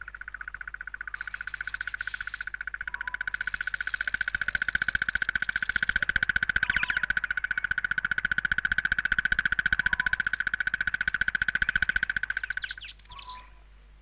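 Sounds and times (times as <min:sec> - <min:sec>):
bird rattling trill: 0:00.0 - 0:13.6.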